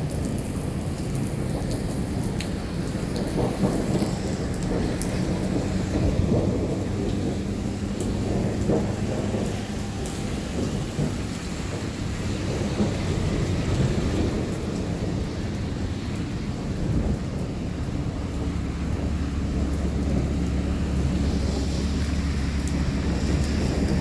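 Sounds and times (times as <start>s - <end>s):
heavy rain on pavement: 0.0s - 24.0s
raindrops ticking close by: 0.0s - 24.0s
deep rumble: 1.2s - 24.0s.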